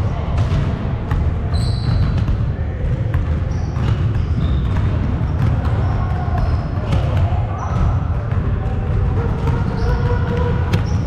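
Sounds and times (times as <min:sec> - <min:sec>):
sneakers squeaking: 0:00.0 - 0:11.0
basketball bouncing on hardwood: 0:07.8 - 0:11.0.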